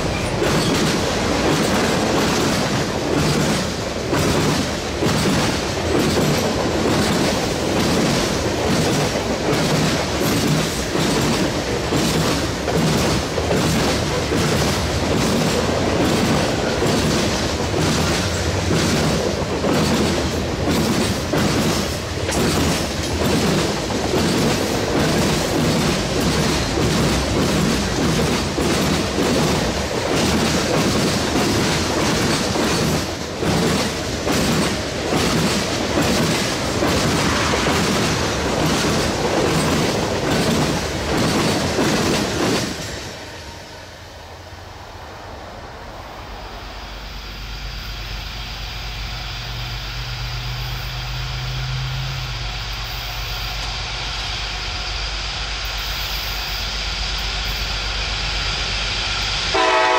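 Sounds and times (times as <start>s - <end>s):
train wheels clicking over rail joints: 0.0s - 43.7s.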